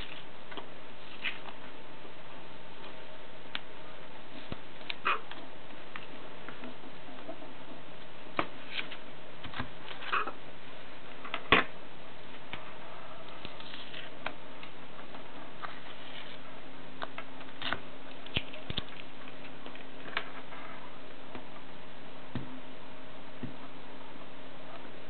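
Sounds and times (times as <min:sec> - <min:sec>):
faint low hum: 0:00.0 - 0:25.0
steady background hiss: 0:00.0 - 0:25.0.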